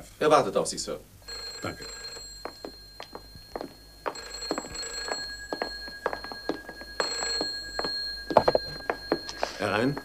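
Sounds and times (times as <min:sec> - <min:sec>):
telephone ringing: 0:01.2 - 0:10.0
footsteps on hard floor: 0:02.1 - 0:10.0.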